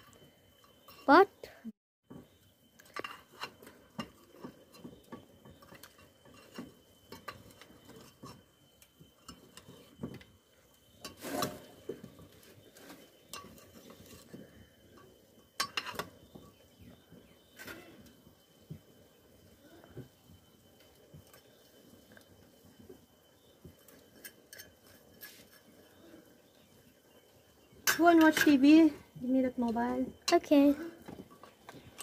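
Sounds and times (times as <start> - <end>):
metal spoon stirring in pot: 0.0 - 1.2, 2.8 - 10.2, 10.8 - 18.1, 23.4 - 26.6.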